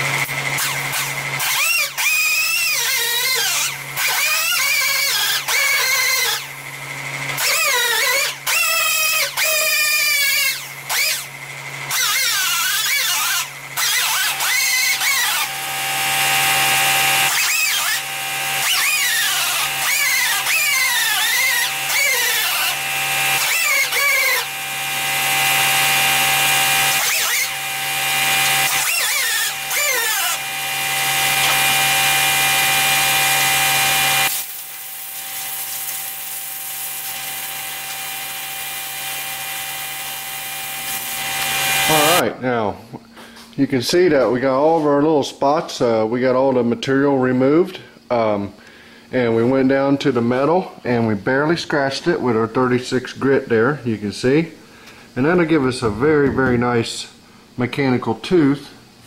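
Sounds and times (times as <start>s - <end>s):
sander grinding metal: 0.0s - 42.2s
steady low hum: 42.2s - 59.0s.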